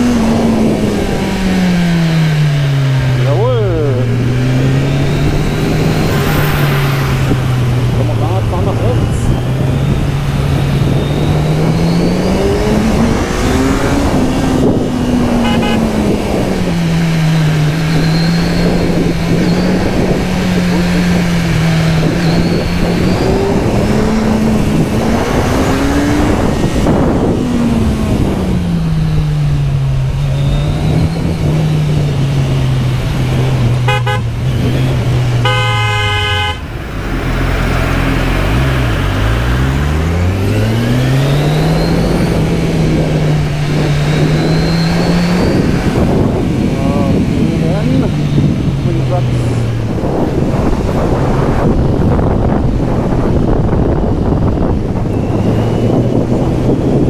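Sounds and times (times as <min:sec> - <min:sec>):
motorcycle engine running: 0:00.0 - 0:40.6
wind rush: 0:00.0 - 0:57.0
vehicle horn toots: 0:15.4 - 0:16.0, 0:33.8 - 0:34.4, 0:35.4 - 0:36.7.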